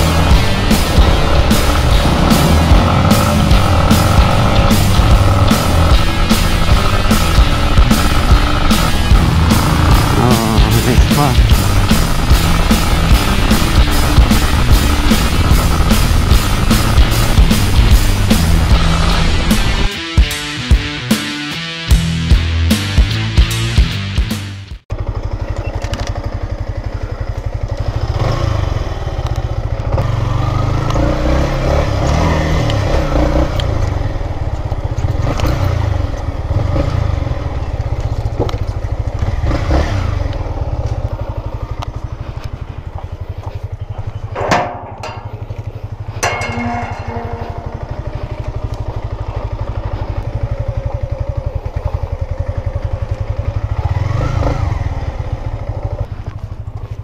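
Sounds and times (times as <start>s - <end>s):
motorcycle engine running: 0.0s - 57.0s
sharp knocks: 44.3s - 48.3s.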